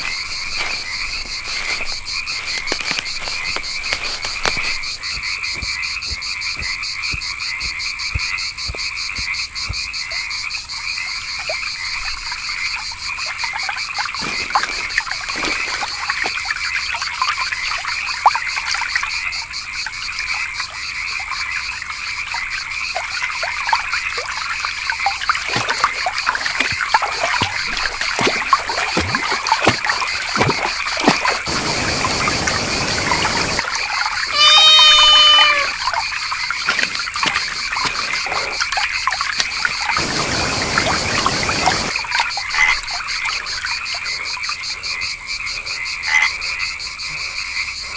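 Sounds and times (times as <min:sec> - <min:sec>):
frogs croaking: 0:00.0 - 0:47.9
waterfall rushing: 0:31.4 - 0:33.7, 0:39.9 - 0:41.9
loud sudden pitched cry: 0:34.3 - 0:35.8.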